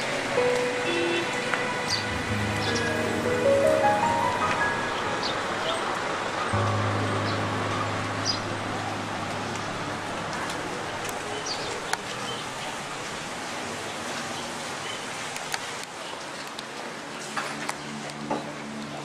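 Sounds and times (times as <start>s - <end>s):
low held music note: 6.6s - 11.0s.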